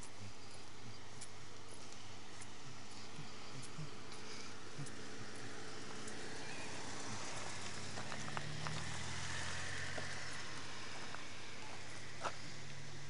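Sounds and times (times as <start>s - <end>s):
footsteps on gravel: 0.0s - 12.8s
low engine hum: 0.0s - 13.0s.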